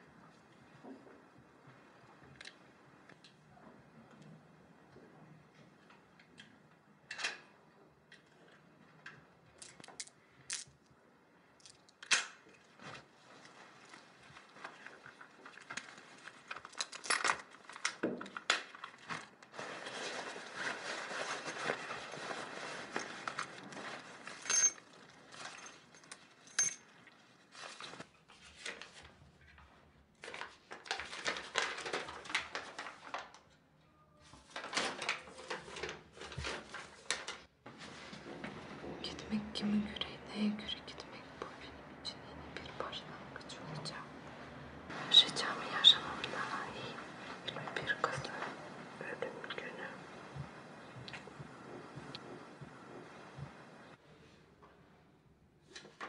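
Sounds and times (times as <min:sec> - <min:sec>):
paper rustling: 0:12.6 - 0:26.4, 0:27.1 - 0:33.6, 0:34.2 - 0:38.9, 0:55.6 - 0:56.0
fabric rustling: 0:18.8 - 0:26.4.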